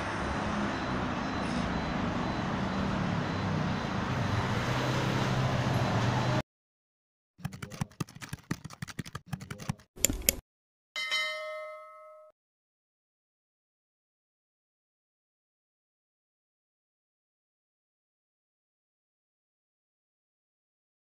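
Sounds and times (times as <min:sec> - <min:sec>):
bell ding: 0:11.0 - 0:12.4.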